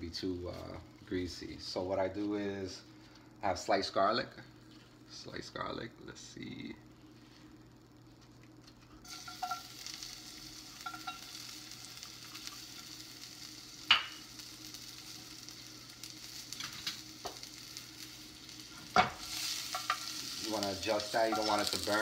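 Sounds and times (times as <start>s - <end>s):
garlic sizzling in oil: 9.0s - 22.0s.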